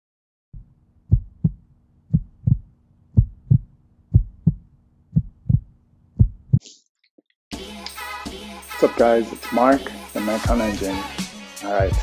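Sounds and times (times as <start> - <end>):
heartbeat thumps: 0.6 - 6.6.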